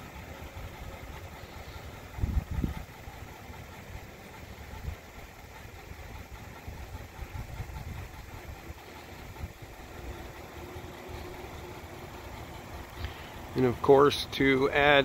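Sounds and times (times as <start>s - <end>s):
pickup truck engine idling: 0.0s - 15.0s
wind rumble on microphone: 2.1s - 2.8s.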